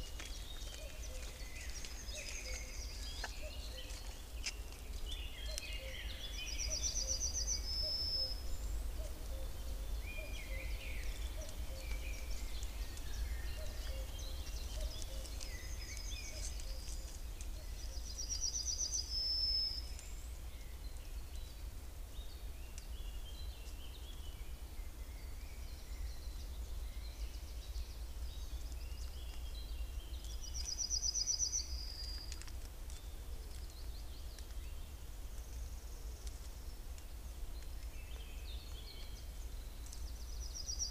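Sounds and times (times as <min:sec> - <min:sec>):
other birds calling: 0:00.0 - 0:20.1
steady low hum: 0:00.0 - 0:30.6.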